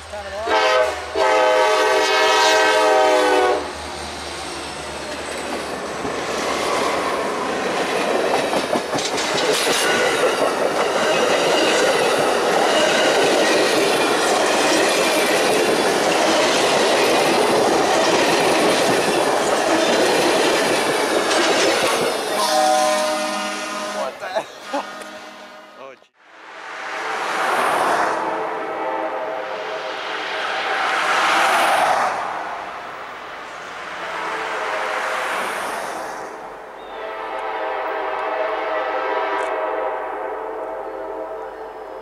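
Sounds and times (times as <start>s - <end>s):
train wheels rumbling on rail: 0.0s - 25.2s, 26.8s - 39.6s
locomotive horn chord: 0.4s - 3.7s, 22.4s - 26.0s, 28.1s - 29.8s, 36.9s - 41.9s.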